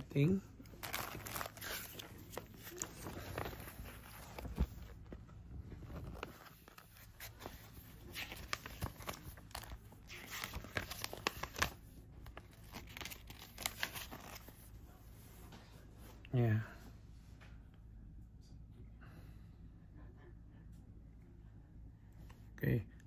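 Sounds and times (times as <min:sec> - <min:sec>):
paper rustling and crinkling: 0:00.0 - 0:15.7.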